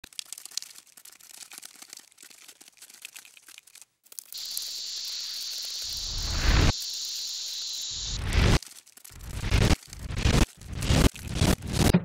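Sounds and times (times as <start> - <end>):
crackling and clicking: 0.0 - 12.0
steady high-pitched hiss: 4.3 - 8.6.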